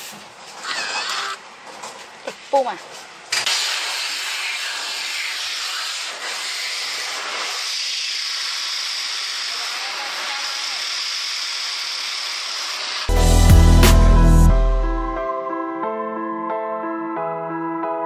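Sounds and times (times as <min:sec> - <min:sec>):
hand dryer air rushing: 0:03.4 - 0:14.1.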